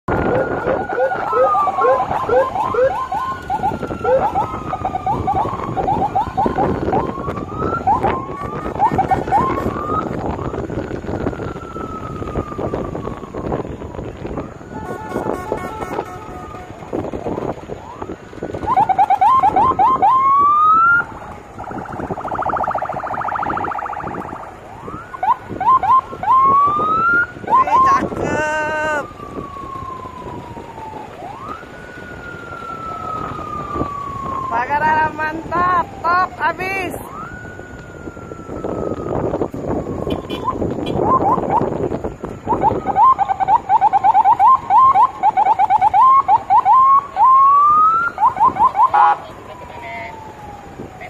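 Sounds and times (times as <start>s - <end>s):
electronic siren wailing: 0.1s - 51.0s
buzzing horn tone: 14.7s - 16.8s, 40.1s - 41.1s.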